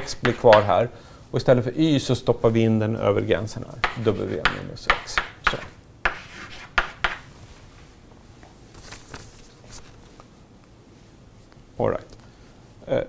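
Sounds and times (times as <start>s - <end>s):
chalk tapping and scratching: 0.0s - 0.8s, 3.8s - 7.3s
faint chalk scuffs: 3.8s - 10.3s.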